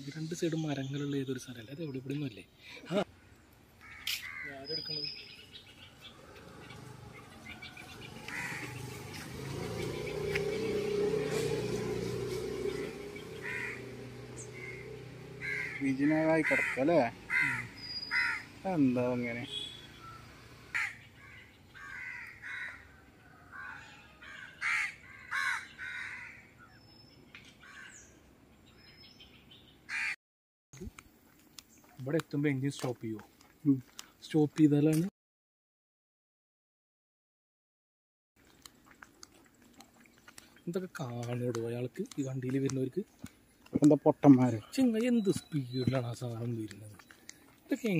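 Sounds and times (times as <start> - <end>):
birds calling: 0.0 - 30.2, 38.6 - 47.9
crows cawing: 3.1 - 4.7, 5.8 - 9.3, 12.7 - 18.6, 20.7 - 26.6, 27.6 - 28.1, 29.9 - 30.2.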